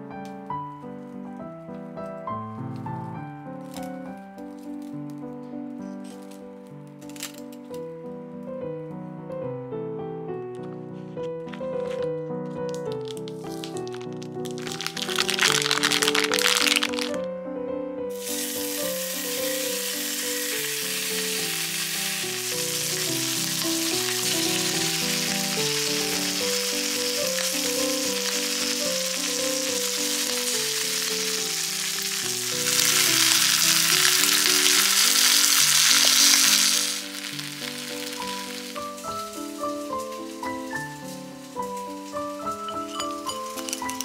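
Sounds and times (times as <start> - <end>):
background music: 11.0 - 44.0
bacon and eggs sizzling in a pan: 14.4 - 17.2, 18.2 - 41.2, 42.0 - 44.0.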